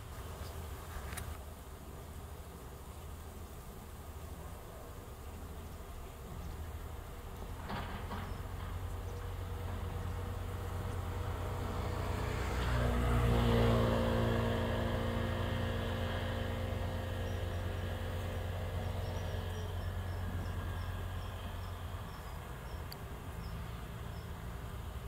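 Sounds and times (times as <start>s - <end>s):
vehicle passing by: 7.3s - 25.0s.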